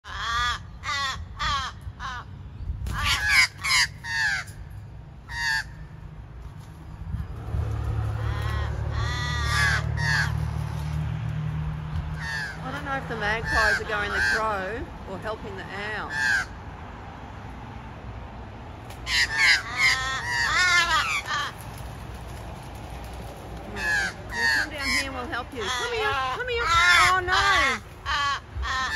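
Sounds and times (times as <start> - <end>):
crows cawing: 0.0 - 2.3, 2.9 - 5.9, 8.1 - 10.9, 12.1 - 14.7, 16.0 - 16.6, 19.0 - 21.9, 23.6 - 28.9.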